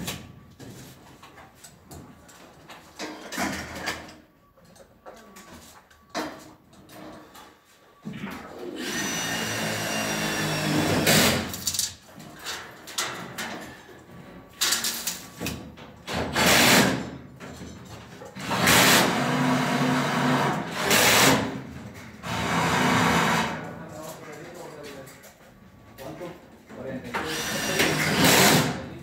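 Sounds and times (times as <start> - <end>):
power drill running in spurts: 8.7 - 11.5, 18.4 - 21.6, 22.2 - 23.6, 27.2 - 28.8.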